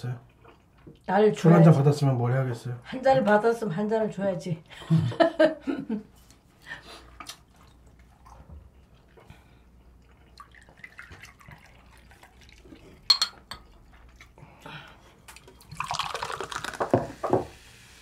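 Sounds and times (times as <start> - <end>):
liquid trickling into a glass: 10.2 - 13.9, 15.4 - 17.7
glass clink: 13.1 - 13.6
fizzy drink poured into glass: 15.4 - 18.0.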